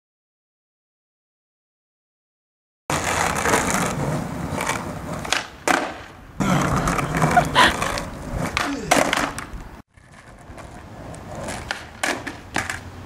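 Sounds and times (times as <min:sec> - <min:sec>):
skateboard popping and landing clacks: 0:02.9 - 0:13.0
skateboard wheels rolling on street: 0:02.9 - 0:13.0.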